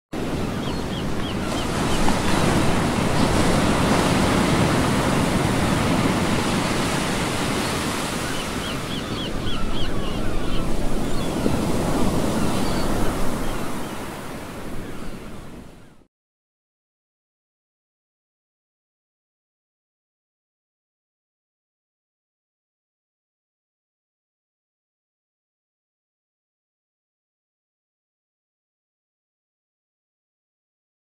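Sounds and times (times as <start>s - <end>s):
ocean waves and surf: 0.2s - 16.1s.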